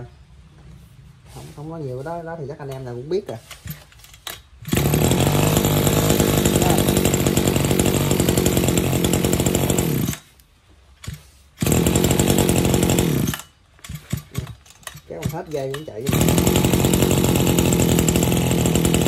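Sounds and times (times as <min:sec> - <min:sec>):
brush cutter engine running: 0:04.6 - 0:10.3, 0:11.0 - 0:19.0.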